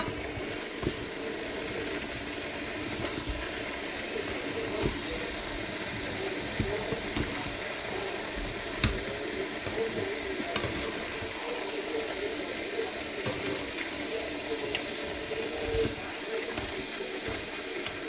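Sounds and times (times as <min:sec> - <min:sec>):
noodles sizzling in frying pan: 0:00.0 - 0:18.0
utensils clicking against pan: 0:08.3 - 0:11.3.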